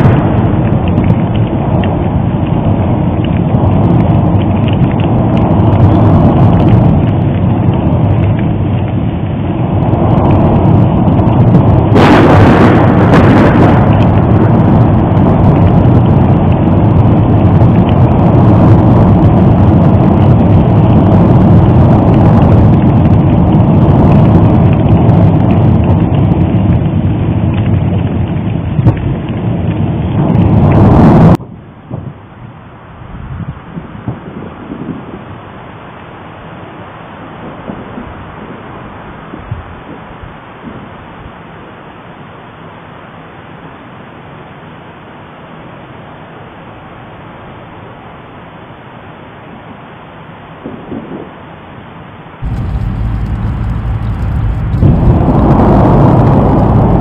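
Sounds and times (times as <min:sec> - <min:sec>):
volcanic eruption rumbling: 0:00.0 - 0:42.3, 0:52.4 - 0:57.0
harsh eruption burst: 0:08.9 - 0:23.1, 0:52.4 - 0:57.0.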